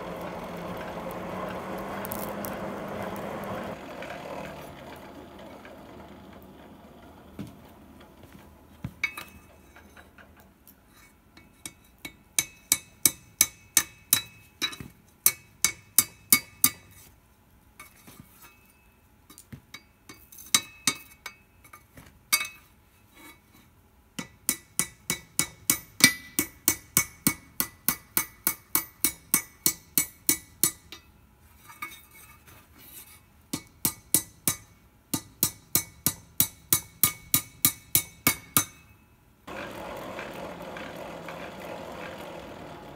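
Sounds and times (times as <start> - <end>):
hammer striking metal on anvil: 11.5 - 16.9, 24.2 - 31.1, 33.5 - 39.0.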